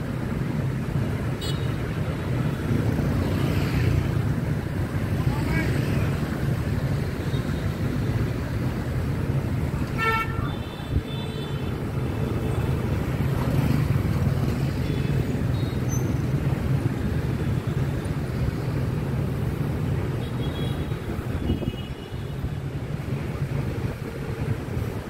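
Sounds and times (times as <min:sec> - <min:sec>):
motorbike and car traffic: 0:00.0 - 0:25.0.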